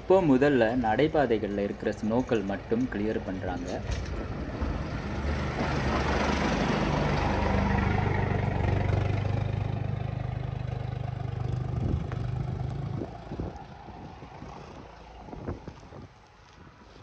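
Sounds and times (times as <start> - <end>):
vehicle engine running: 4.3 - 15.8.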